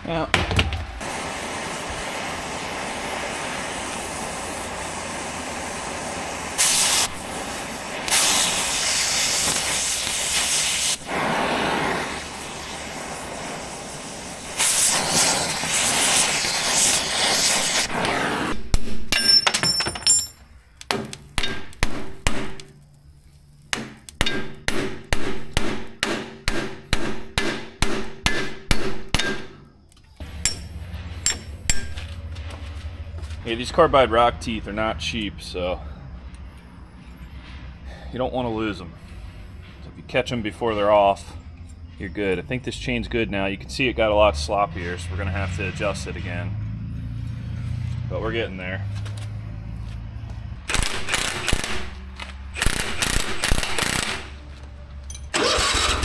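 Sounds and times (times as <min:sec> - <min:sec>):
hammer blows on metal chain: 0:19.1 - 0:20.4, 0:30.2 - 0:32.1.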